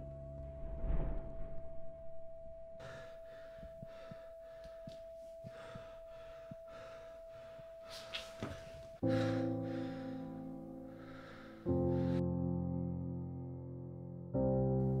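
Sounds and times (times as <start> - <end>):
man panicked breathing and gasps: 2.8 - 12.2.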